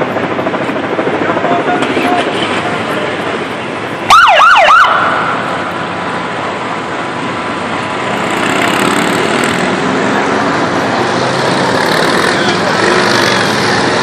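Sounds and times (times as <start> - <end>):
motorcycle engines: 0.0 - 14.0
street traffic noise: 0.0 - 14.0
police siren yelp: 4.1 - 5.5.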